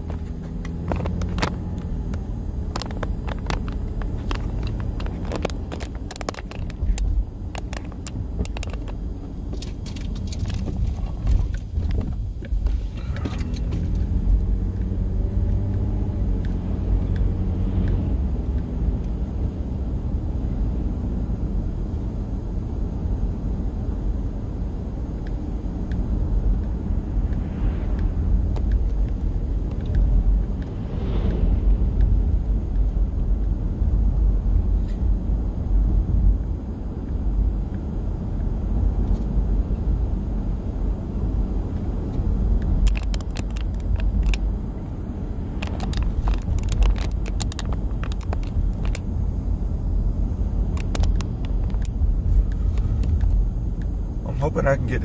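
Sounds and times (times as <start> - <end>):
car rumble from inside cabin: 0.0 - 55.0
sharp clicks: 42.1 - 44.9, 45.5 - 49.1, 50.7 - 54.0.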